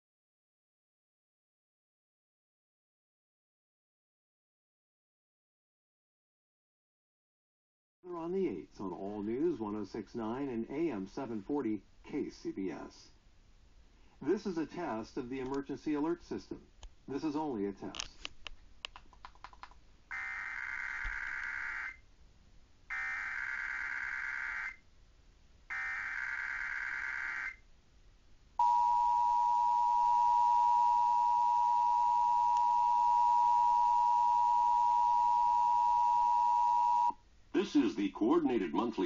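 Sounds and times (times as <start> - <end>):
two-tone attention signal: 28.6 - 37.1
data tone bursts: 28.6 - 37.2.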